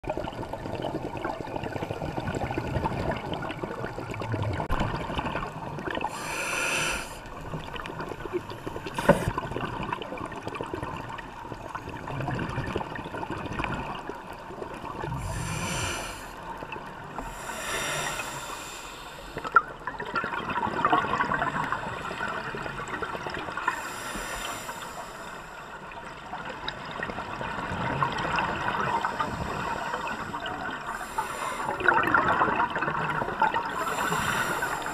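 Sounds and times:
exhaled bubbles gushing: 0.0s - 6.3s, 7.3s - 17.2s, 19.4s - 23.8s, 26.1s - 34.9s
scuba regulator breathing: 6.1s - 7.3s, 8.7s - 9.3s, 15.1s - 16.4s, 17.2s - 19.5s, 23.6s - 25.8s, 28.8s - 31.9s, 33.7s - 34.9s
crackling hiss: 6.1s - 7.6s, 15.1s - 16.5s, 17.2s - 19.6s, 33.7s - 34.9s.

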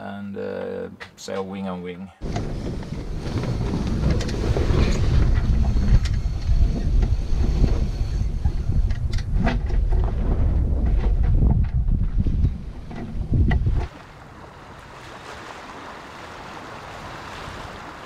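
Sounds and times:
wind buffeting microphone: 2.2s - 13.9s.

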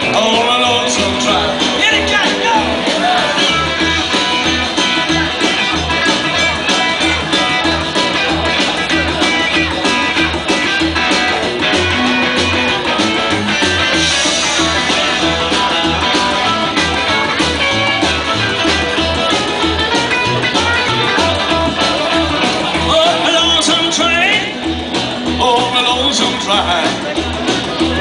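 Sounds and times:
electric lead guitar: 0.0s - 28.0s
strummed acoustic guitar: 0.0s - 28.0s
upright bass plucking: 0.0s - 28.0s.

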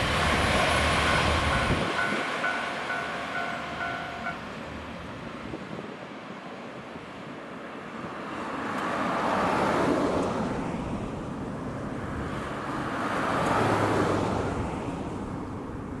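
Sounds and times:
train passing rumble: 0.0s - 9.1s.

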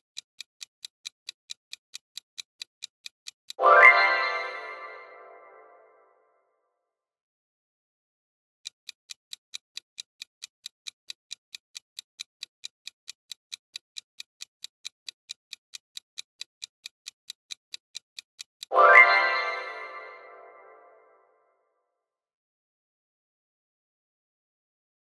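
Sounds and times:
countdown timer ticking: 0.0s - 5.8s, 9.1s - 21.1s.

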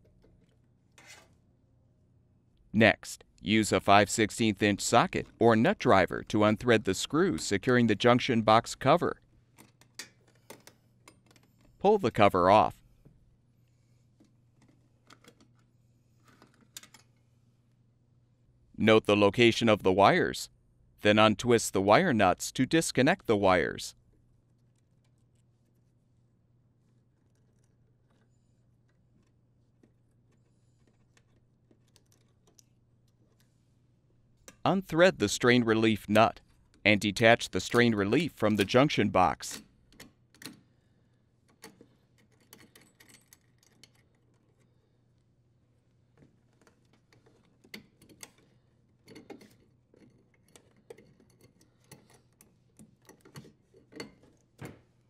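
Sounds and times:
low steady hum: 11.2s - 40.1s.

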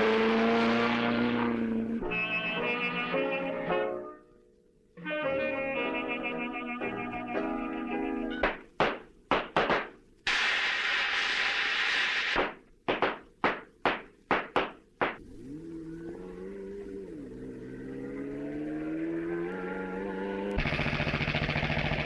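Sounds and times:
car engine accelerating: 0.0s - 2.0s, 15.2s - 22.0s
steady hissing rush: 10.3s - 12.4s.

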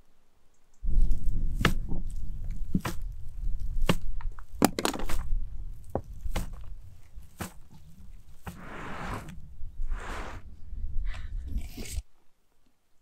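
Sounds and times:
membrane crackling and knocking: 0.8s - 8.9s.

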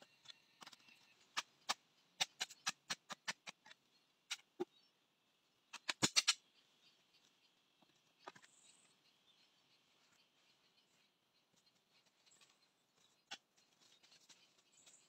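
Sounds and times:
tools chopping into soil: 1.4s - 4.4s.

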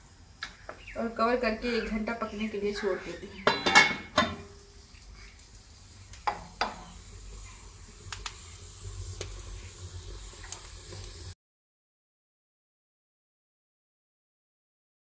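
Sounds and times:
wood fire crackling: 0.0s - 11.4s.

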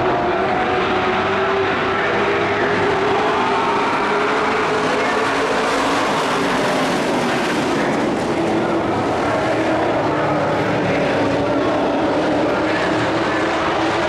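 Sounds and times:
race truck engines revving: 0.0s - 14.0s.

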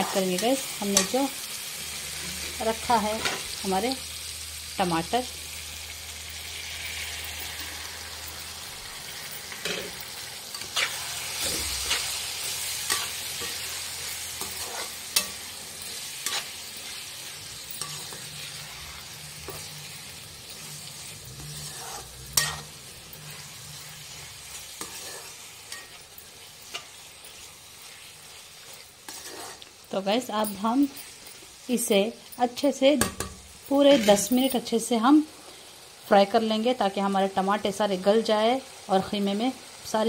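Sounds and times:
metal spoon scraping pan: 0.0s - 1.2s, 9.1s - 31.5s, 33.0s - 34.7s
food sizzling in frying pan: 0.0s - 40.0s.

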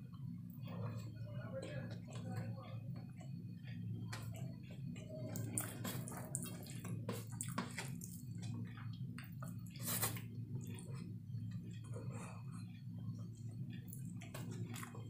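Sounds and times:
low steady hum: 0.0s - 15.0s
wet chewing sounds: 3.2s - 15.0s.

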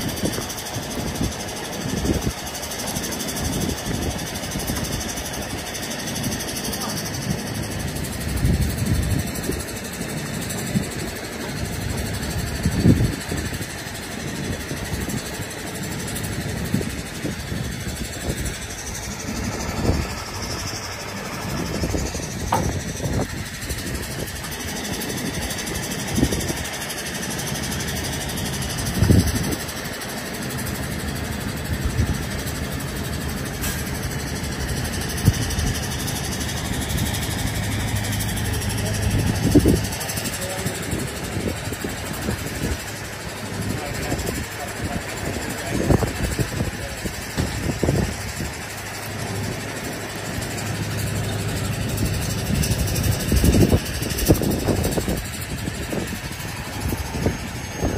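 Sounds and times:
diesel engine idling: 0.0s - 57.9s
engine knocks and thumps: 0.0s - 57.9s.

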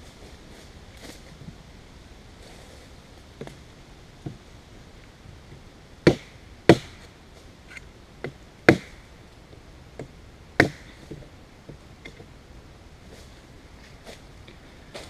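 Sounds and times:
knife chopping wood: 6.1s - 7.0s, 10.6s - 10.9s.

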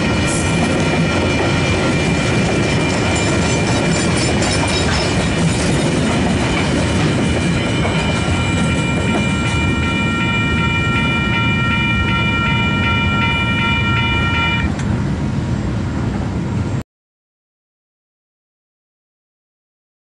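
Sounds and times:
low rumble of train: 0.0s - 16.8s
level-crossing bells ringing: 8.0s - 14.7s.

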